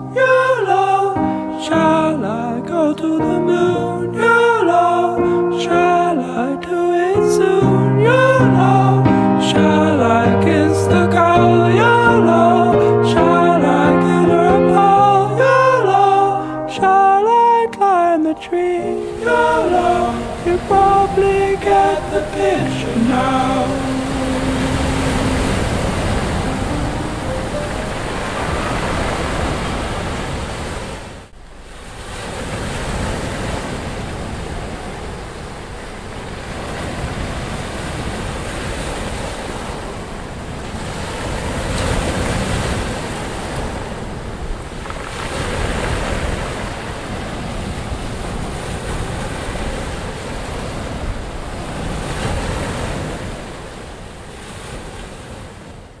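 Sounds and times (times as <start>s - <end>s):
wind: 0.0s - 56.0s
surf washing onto beach: 18.8s - 55.7s.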